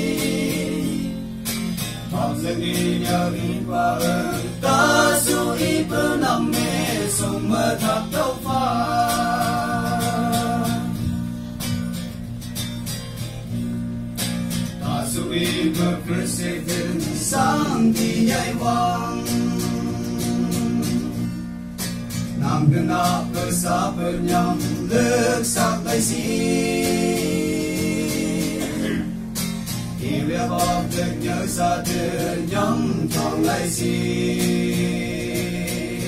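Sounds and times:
men singing together: 0.0s - 11.3s, 14.8s - 21.3s, 22.4s - 29.3s, 30.0s - 36.0s
instrumental accompaniment: 4.0s - 15.0s.

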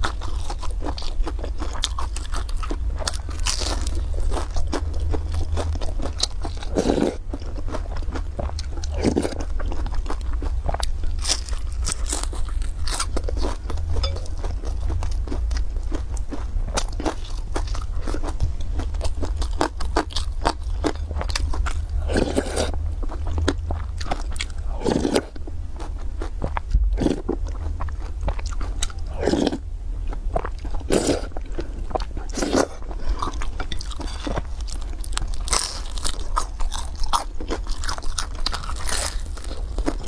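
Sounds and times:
crunching and chewing: 0.0s - 40.0s
steady low hum: 0.0s - 40.0s
slurping noodles: 6.7s - 7.2s, 22.0s - 22.8s, 24.7s - 25.3s, 29.1s - 29.6s, 30.9s - 31.3s, 32.3s - 33.2s.

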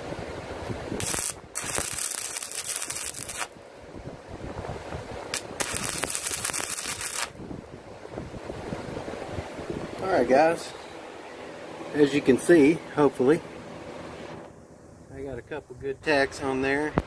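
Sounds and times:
welding arc crackling: 1.0s - 3.6s, 5.3s - 7.4s.

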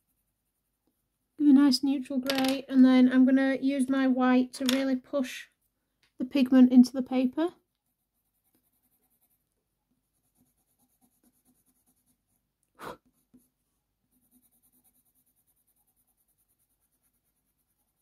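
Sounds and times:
pencil scratching on paper: 0.0s - 0.8s, 7.9s - 18.0s.

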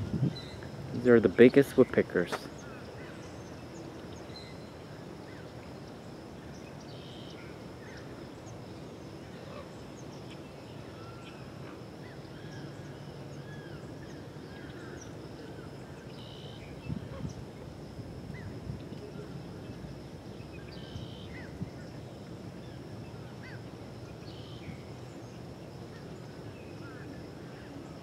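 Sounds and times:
steady low rumble: 0.0s - 1.8s
small birds chirping: 0.0s - 17.6s, 18.3s - 28.0s.

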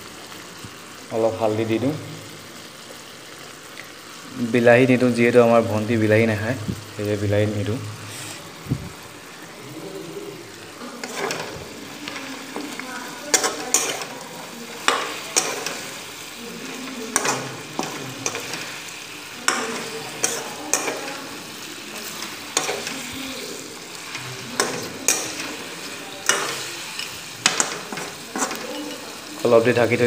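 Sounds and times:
meat and potatoes sizzling in oil: 0.0s - 30.0s
metal spoon scraping and clinking pan: 11.0s - 12.3s, 13.2s - 14.2s, 14.8s - 15.9s, 17.1s - 18.8s, 19.4s - 21.3s, 22.1s - 23.2s, 24.0s - 29.2s.

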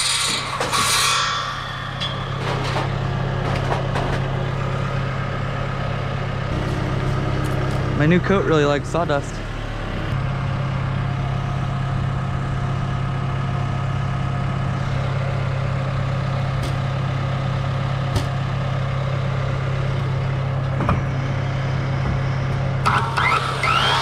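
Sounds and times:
circular saw starting: 0.0s - 5.1s, 22.8s - 24.0s
engine idling: 0.0s - 24.0s.

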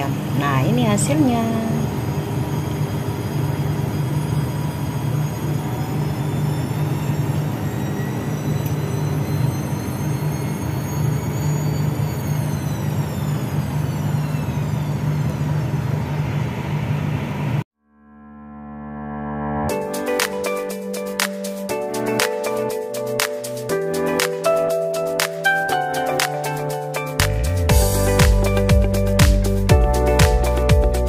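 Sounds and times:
mechanical hum with high whine: 0.0s - 17.6s
music: 17.8s - 31.0s.

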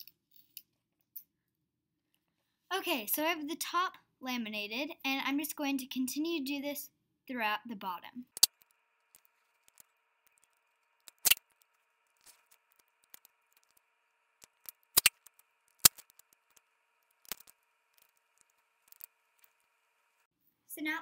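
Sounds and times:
faint steady hum: 7.8s - 21.0s
tape and paper clicks and snaps: 8.4s - 13.8s, 14.4s - 16.6s, 17.2s - 19.5s.

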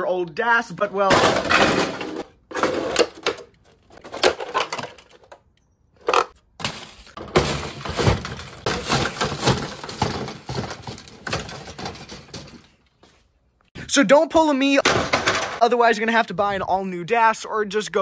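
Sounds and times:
plastic cracking and crunching: 6.2s - 12.6s.

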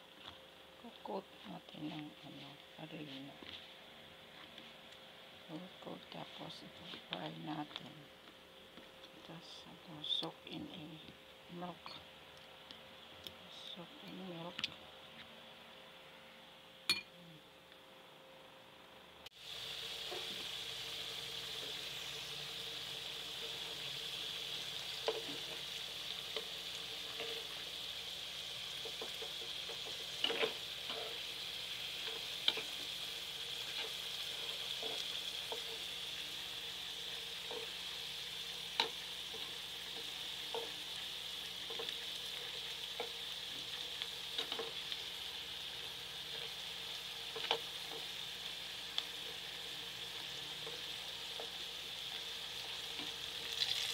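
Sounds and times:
crackers frying in hot oil: 19.3s - 53.9s.

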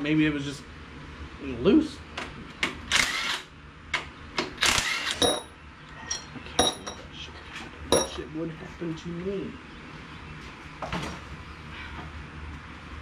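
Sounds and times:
ringing metal clinks: 5.2s - 7.0s, 7.9s - 8.2s.

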